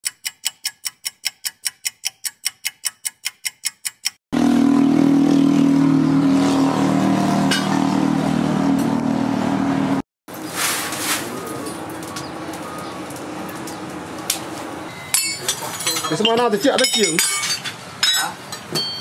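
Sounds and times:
rapid ticking: 0.0s - 4.2s
loud mechanical hum: 4.4s - 16.2s.

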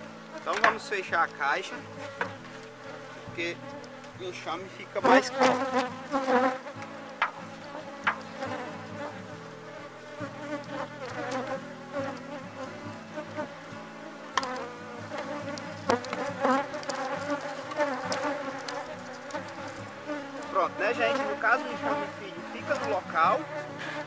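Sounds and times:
bees buzzing: 0.0s - 24.0s
hive lid knocks: 0.5s - 1.0s, 7.2s - 7.4s, 8.0s - 8.7s, 14.4s - 18.9s
bee droning flying past: 1.7s - 24.0s.

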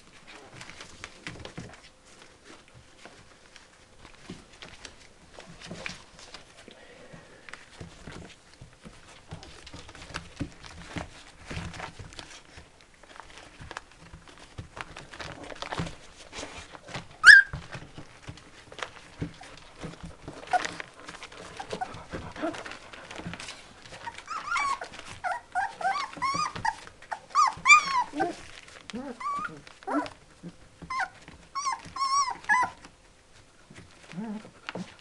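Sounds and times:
puppies scuffling on bedding: 0.0s - 35.0s
puppy squealing: 17.2s - 17.6s, 24.0s - 30.2s, 30.9s - 32.8s
puppy yipping: 17.2s - 17.8s, 24.0s - 30.2s, 30.9s - 32.9s.

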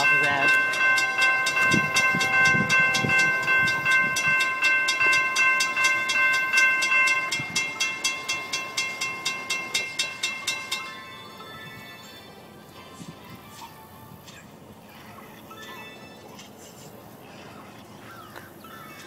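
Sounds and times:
railroad crossing bell ringing: 0.0s - 12.7s.

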